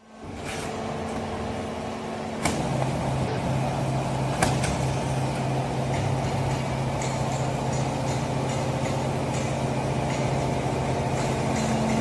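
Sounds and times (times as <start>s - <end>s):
baler machine hum: 0.0s - 12.0s
machine clanking: 4.2s - 12.0s.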